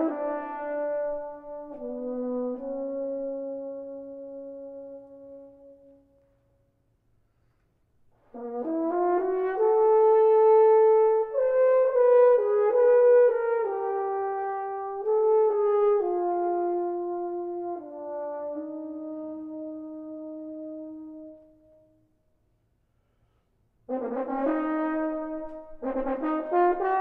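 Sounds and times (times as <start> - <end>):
french horn playing: 0.0 - 6.4, 8.3 - 22.0, 23.8 - 27.0.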